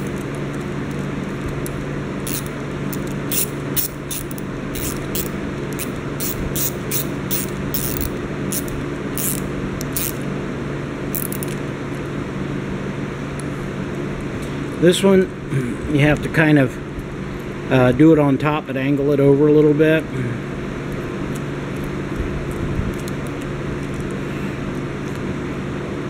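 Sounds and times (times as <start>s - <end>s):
steady low hum: 0.0s - 26.0s
ratchet screwdriver clicking: 2.3s - 10.2s, 11.2s - 11.6s.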